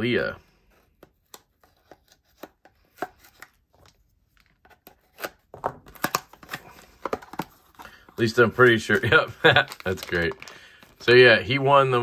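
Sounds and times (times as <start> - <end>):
cardboard clicks taps and scrapes: 0.8 - 8.2.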